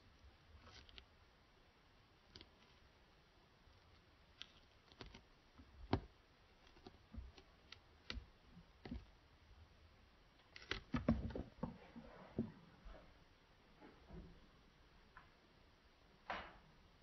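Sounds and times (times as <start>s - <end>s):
knocks and rustling: 10.6s - 12.6s.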